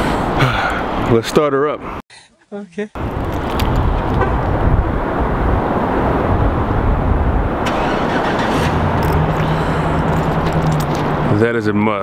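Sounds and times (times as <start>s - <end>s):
steady rushing noise: 3.0s - 11.8s
truck engine idling: 7.7s - 11.2s.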